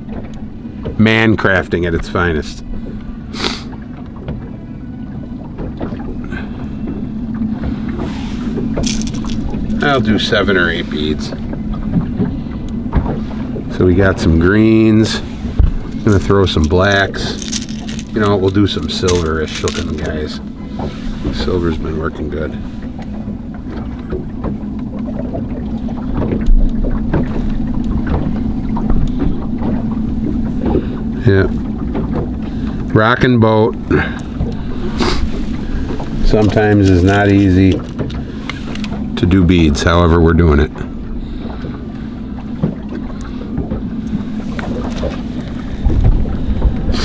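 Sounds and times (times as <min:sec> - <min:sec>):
boat motor humming: 0:00.0 - 0:47.0
wind rumbling on microphone: 0:07.5 - 0:21.5, 0:40.8 - 0:47.0.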